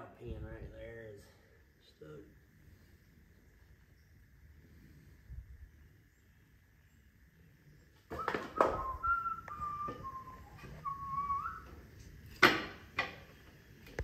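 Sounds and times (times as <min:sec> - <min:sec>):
person whistling: 0:08.2 - 0:11.7.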